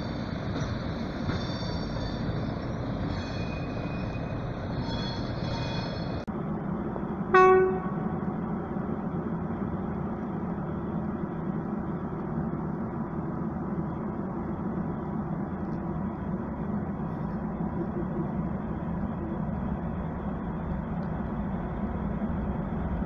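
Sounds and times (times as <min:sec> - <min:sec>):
locomotive low hum: 0:00.0 - 0:23.0
locomotive horn blast: 0:07.3 - 0:08.3.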